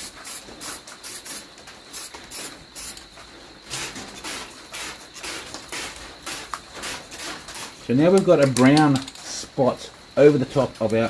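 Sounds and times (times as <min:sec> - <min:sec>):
spray can hissing bursts: 0:00.0 - 0:03.0, 0:03.7 - 0:07.8.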